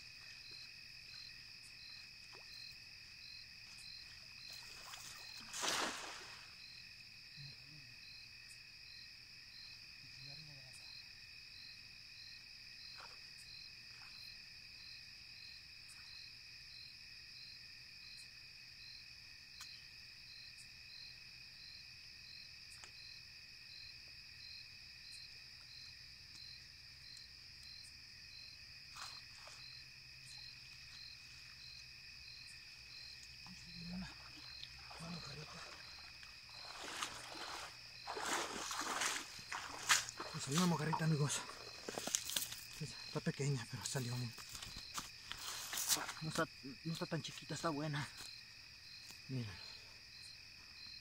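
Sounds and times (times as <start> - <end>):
night insects trilling: 0.0 - 51.0
water sloshing: 4.5 - 6.6, 33.3 - 42.8.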